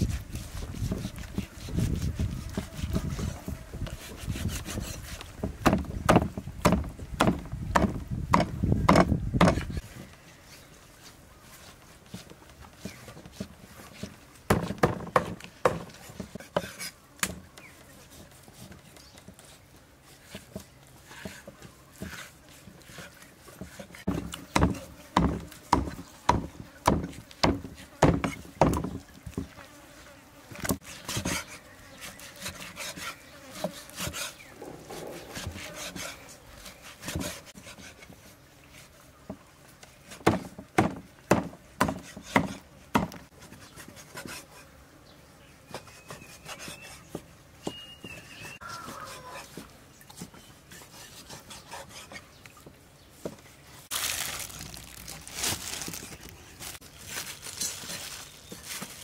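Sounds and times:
knife chopping on wooden board: 4.3 - 9.7, 14.5 - 17.4, 23.6 - 28.9, 40.2 - 43.2
knife scraping cutting board: 15.8 - 17.0, 19.4 - 24.2, 30.7 - 38.9, 45.7 - 47.8, 50.7 - 52.3.

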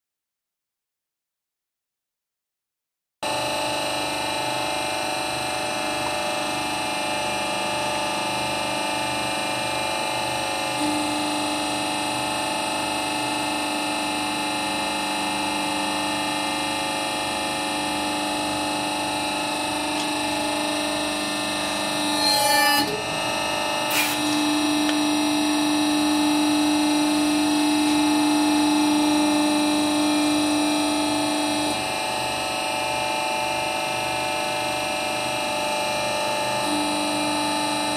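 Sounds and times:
steady hum: 17.6 - 28.2
hydraulic pump motor whining: 18.5 - 27.4
rubber ring squeaking crackle: 22.1 - 23.2, 23.9 - 24.4.

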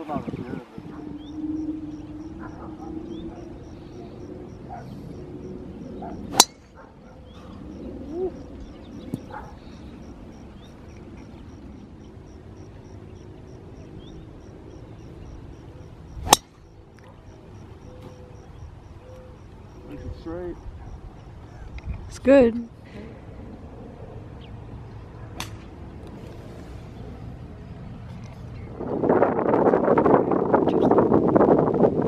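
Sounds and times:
club striking golf ball: 6.3 - 6.6, 16.2 - 16.6.

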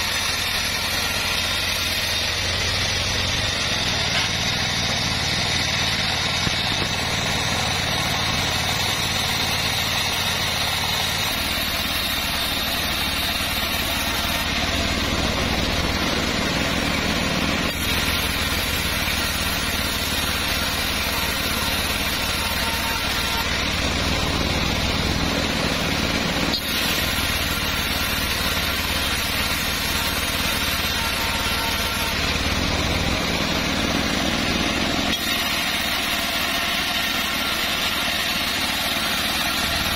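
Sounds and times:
bandsaw mill ripping a board: 17.4 - 25.0, 26.5 - 39.9.

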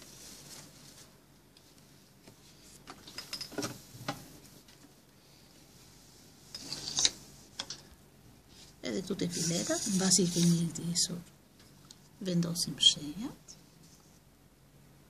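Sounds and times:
fabric rustling: 0.0 - 3.0.

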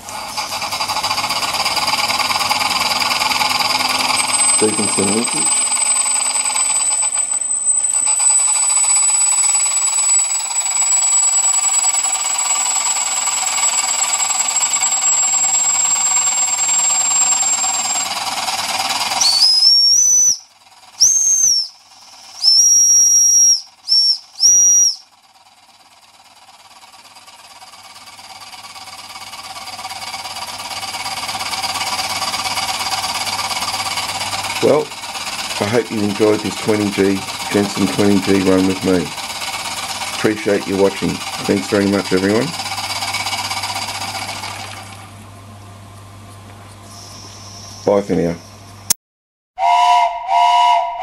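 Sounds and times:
toy steam engine hissing: 0.0 - 25.2, 26.0 - 45.0, 46.9 - 48.4
steam whistle toots: 4.1 - 18.0, 19.2 - 25.1, 49.6 - 51.0.

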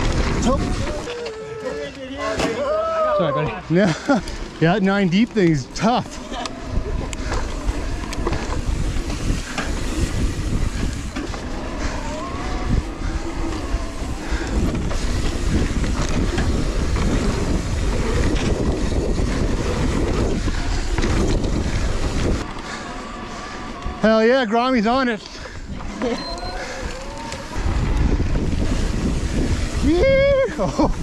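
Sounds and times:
wind buffeting microphone: 0.0 - 1.1, 3.8 - 31.0
bike clattering over bumps: 0.0 - 1.3, 3.9 - 24.0
tyres rumbling on dirt: 0.0 - 2.7, 3.5 - 31.0.

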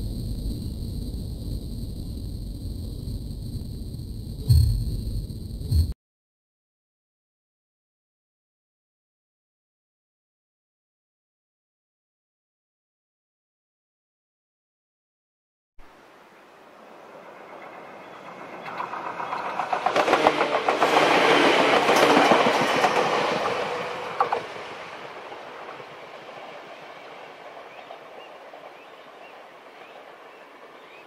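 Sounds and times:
electric train passing: 0.0 - 6.0, 16.3 - 31.0
sharp knock: 4.4 - 5.9
train wheels clicking over rail joints: 17.5 - 26.8.

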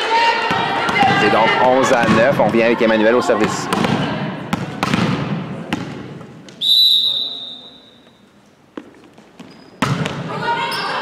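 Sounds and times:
sharp thuds in echoing gym: 3.7 - 6.1, 9.8 - 10.2
referee's whistle: 6.6 - 8.2.

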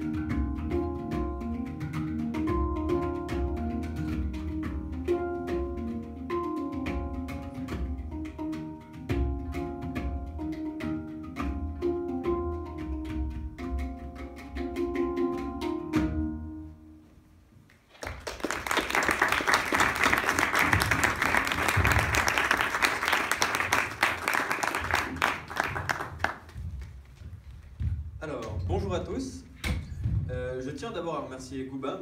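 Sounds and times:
banjo: 0.0 - 16.6
handpans: 0.0 - 16.6
audience clapping: 17.7 - 27.2.

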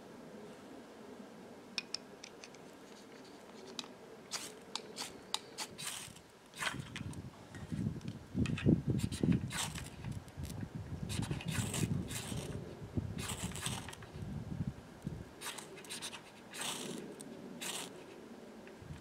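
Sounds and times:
scraping tinder: 2.6 - 7.8, 9.0 - 10.2, 11.1 - 12.6, 13.2 - 14.2, 15.4 - 18.2.

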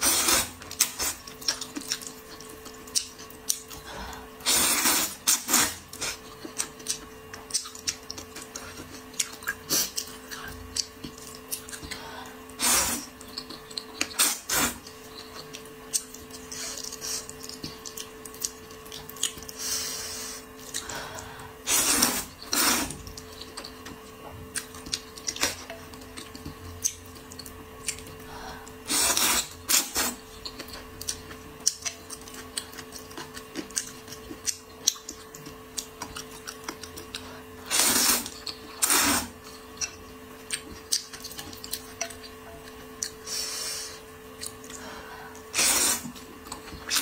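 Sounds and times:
loud noodle slurping: 0.0 - 1.2, 4.4 - 6.3, 12.6 - 13.1, 21.6 - 23.0, 28.9 - 30.2, 37.6 - 39.4, 45.5 - 46.2
faint steady hum: 0.0 - 47.0
wet chewing: 0.3 - 3.9, 4.6 - 12.0, 12.9 - 19.6, 29.0 - 43.2.

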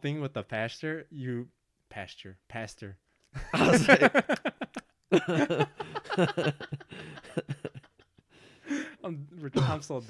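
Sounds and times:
men laughing: 3.4 - 8.0.

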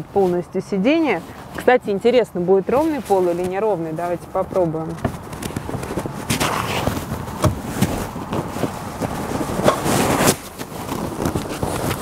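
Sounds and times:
upholstery handling noise: 2.7 - 12.0
seat mechanism clicks and knocks: 4.8 - 12.0.

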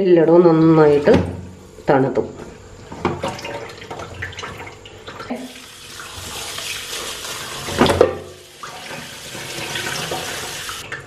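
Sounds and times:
tap water running: 2.8 - 11.0.

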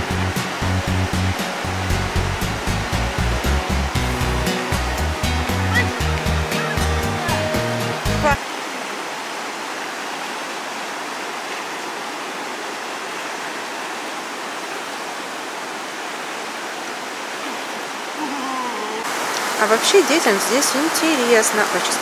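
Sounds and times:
background music with bass line: 0.0 - 8.4
river rushing over rapids: 0.0 - 22.0.

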